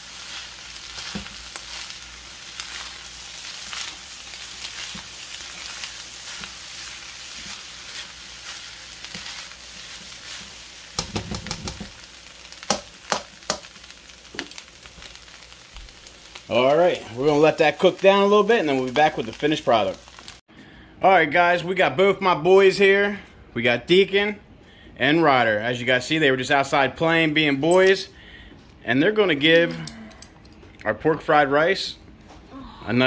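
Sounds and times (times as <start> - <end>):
rice sizzling in a wok: 0.0 - 20.5.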